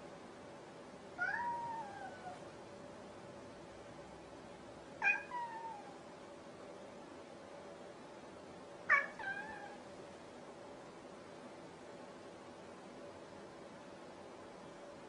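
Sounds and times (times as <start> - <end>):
cat meowing: 1.2 - 2.4, 5.0 - 6.0, 8.9 - 9.8.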